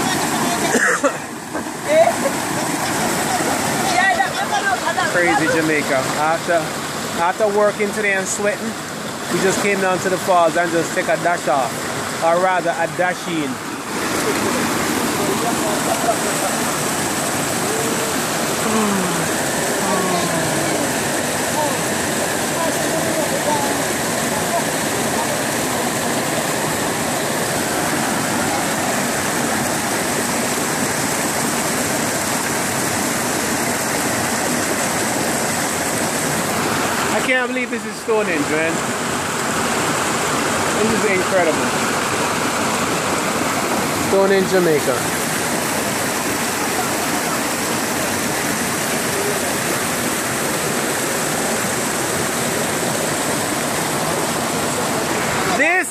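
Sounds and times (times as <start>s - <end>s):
waterfall rushing over boulders: 0.0s - 55.9s.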